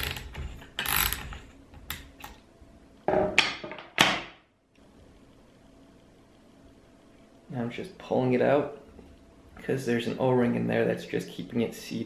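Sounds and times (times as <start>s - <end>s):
ratchet wrench clicks: 0.8s - 1.3s.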